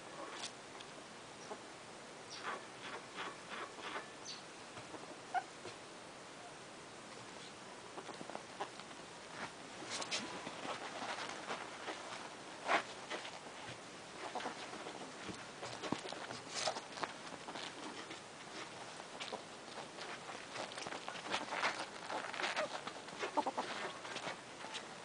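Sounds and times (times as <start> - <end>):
ferrets scuffling on bedding: 7.4 - 25.0.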